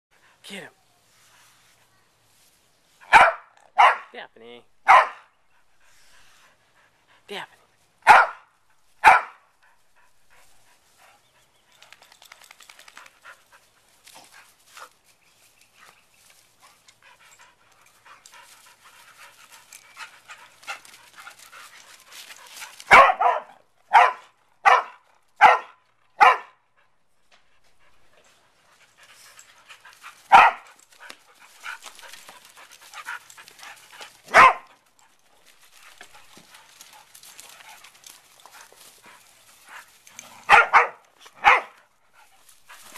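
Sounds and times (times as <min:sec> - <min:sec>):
dog barks: 0:03.0 - 0:04.2, 0:04.8 - 0:05.3, 0:08.0 - 0:09.4, 0:22.9 - 0:26.6, 0:30.3 - 0:30.7, 0:34.3 - 0:34.7, 0:40.4 - 0:41.8
dogs panting: 0:05.4 - 0:07.9, 0:09.5 - 0:23.3, 0:26.6 - 0:42.9.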